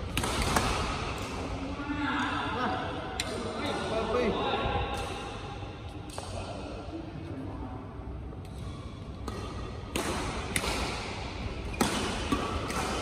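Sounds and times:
rackets striking shuttlecocks: 0.0 - 1.5, 8.4 - 13.0.

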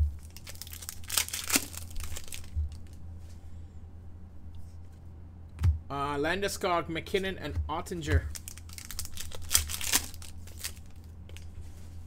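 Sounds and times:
wrapper crinkling: 0.0 - 3.0, 8.2 - 11.7
foil pack tearing: 0.2 - 3.0, 8.2 - 11.5.

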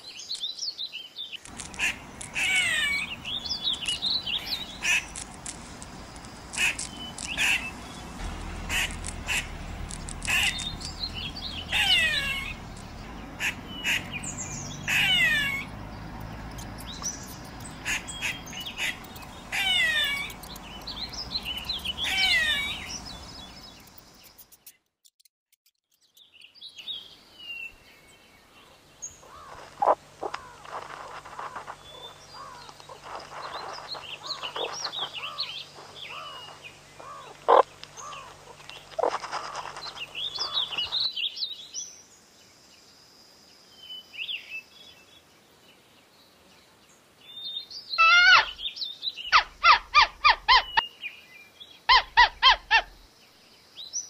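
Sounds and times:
sharp clicks: 1.4 - 2.5, 3.7 - 11.1, 16.2 - 22.2
animal chirping: 1.5 - 5.2, 6.5 - 8.0, 8.7 - 23.1, 29.2 - 41.1, 48.0 - 48.6, 49.3 - 50.8, 51.9 - 53.0.

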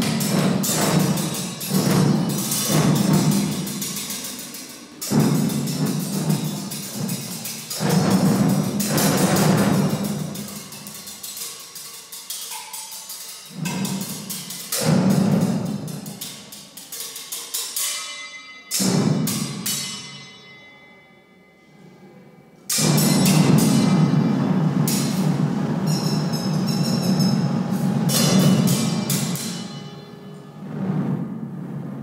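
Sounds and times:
fast rattling strokes: 0.0 - 17.8
deep drum-like hits: 5.0 - 10.6, 22.8 - 29.8, 30.6 - 32.0
ringing tail: 17.8 - 31.9.

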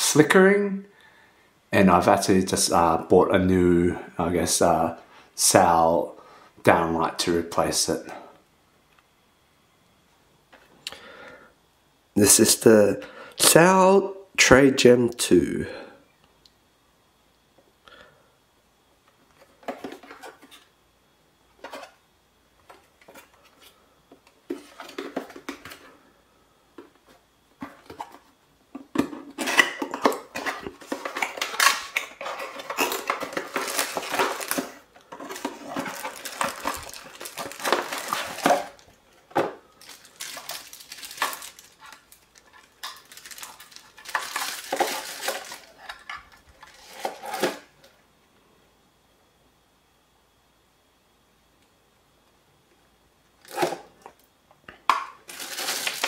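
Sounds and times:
plastic packaging crinkling: 28.9 - 47.7, 54.9 - 56.0.

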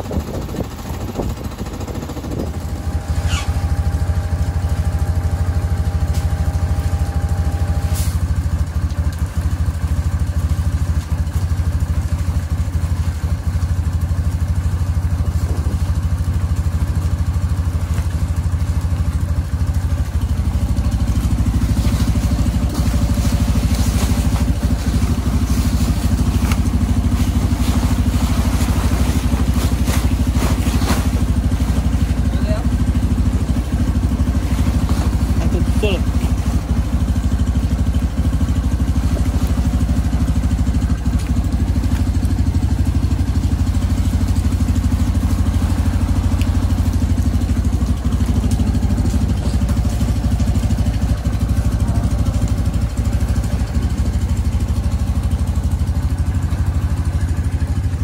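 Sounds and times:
atv engine idling: 0.0 - 58.0.

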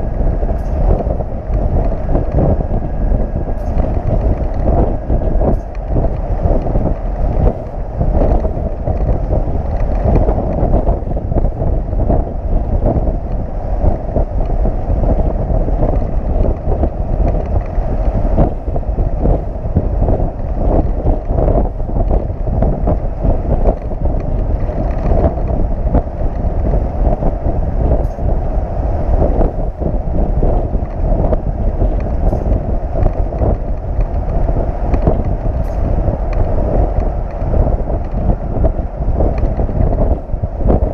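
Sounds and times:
truck and road rumble: 0.0 - 40.9
wind buffeting microphone: 0.0 - 40.9.

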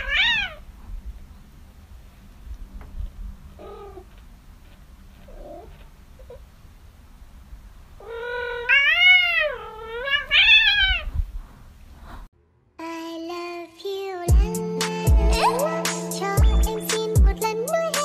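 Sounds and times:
kitten meowing: 8.0 - 11.1.

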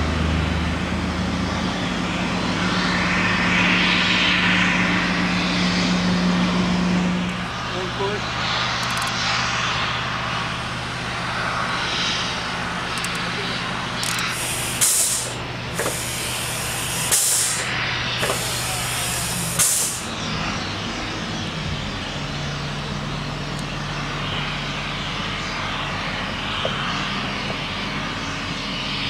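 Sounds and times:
crane engine humming: 0.0 - 29.0
short sharp hisses: 14.2 - 20.1.

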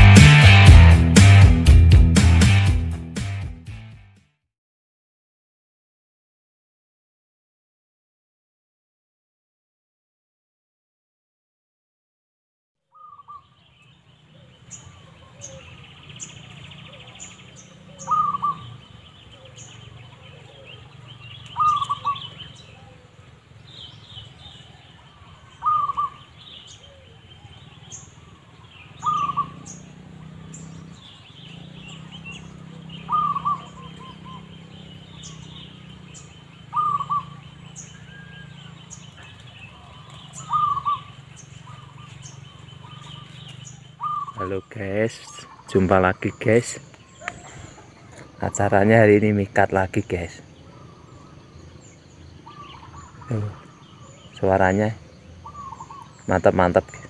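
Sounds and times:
dove calling: 12.9 - 57.0
small birds chirping: 12.9 - 57.0.

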